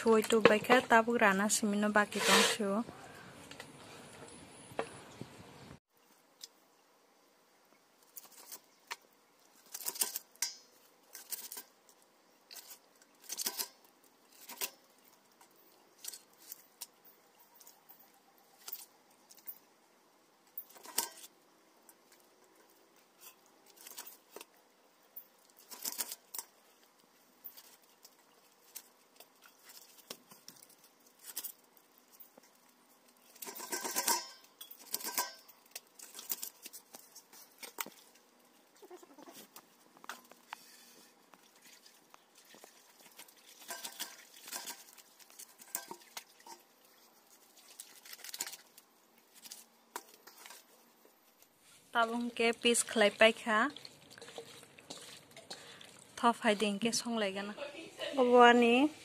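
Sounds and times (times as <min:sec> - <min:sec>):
blade clinking on metal bowl: 0:33.4 - 0:35.5.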